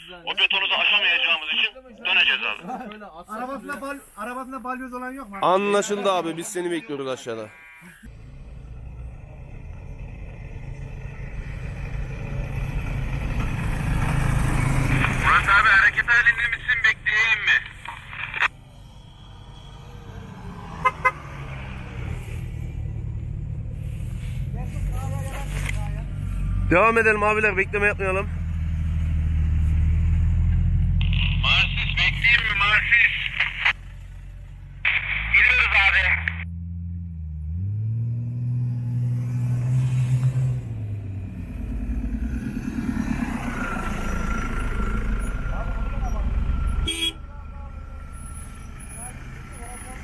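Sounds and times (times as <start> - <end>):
off-road vehicle engines: 0.0 - 50.0
car horn toots: 20.8 - 21.2, 46.8 - 47.2.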